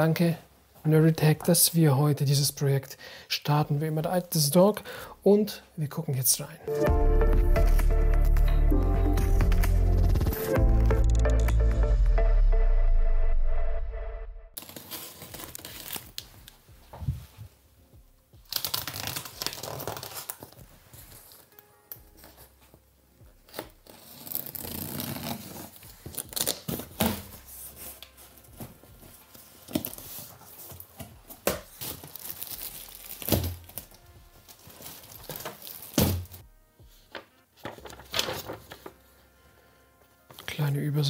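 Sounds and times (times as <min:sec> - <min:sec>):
plastic wrap crinkling and tearing: 0:14.6 - 0:16.6, 0:18.4 - 0:22.5, 0:23.4 - 0:36.4.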